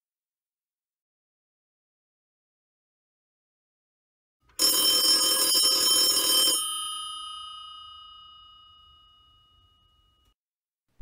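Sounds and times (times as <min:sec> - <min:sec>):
telephone bell ringing: 0:04.6 - 0:10.4.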